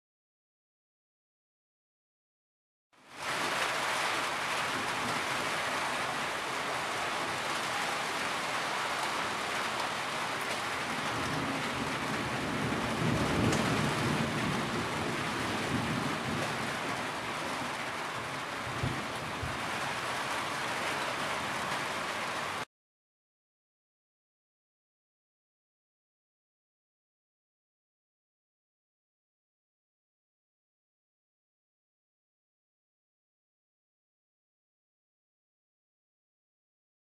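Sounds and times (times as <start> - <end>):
steady rain: 3.0 - 22.7
low rumble of thunder: 10.8 - 19.8.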